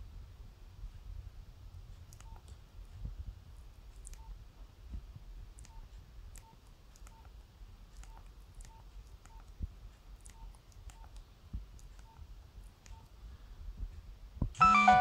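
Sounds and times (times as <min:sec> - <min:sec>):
phone keypad beeps: 0:14.6 - 0:15.0.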